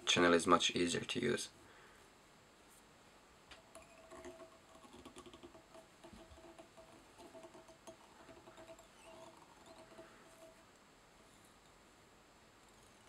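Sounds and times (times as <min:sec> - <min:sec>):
soft handling squeaks and ticks: 0:08.4 - 0:10.6.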